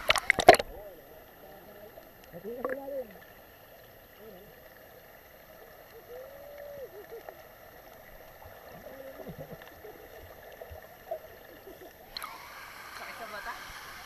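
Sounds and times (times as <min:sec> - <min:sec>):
muffled underwater water wash: 0:00.0 - 0:14.0
muffled voice-like calls and gurgles: 0:00.6 - 0:03.2, 0:04.1 - 0:04.7, 0:05.9 - 0:07.5, 0:08.7 - 0:10.2.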